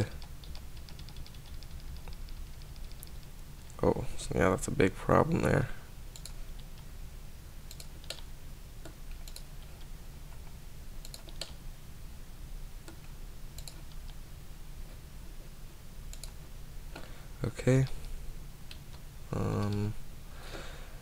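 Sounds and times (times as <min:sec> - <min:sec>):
steady low hum: 0:00.0 - 0:21.0
mouse and keyboard clicks: 0:08.8 - 0:09.9, 0:11.0 - 0:11.6.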